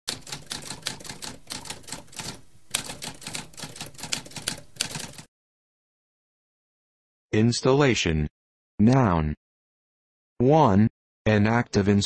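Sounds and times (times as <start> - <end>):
typewriter keys clacking: 0.1 - 5.3.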